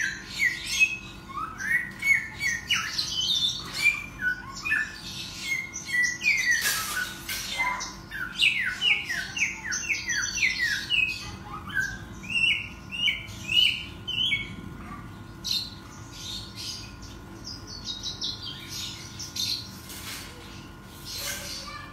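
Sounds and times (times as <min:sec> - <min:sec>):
songbird whistling: 0:00.0 - 0:07.2.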